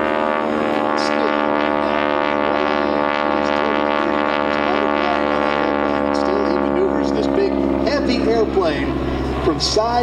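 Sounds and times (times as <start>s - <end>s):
propeller plane engine drone: 0.0s - 10.0s.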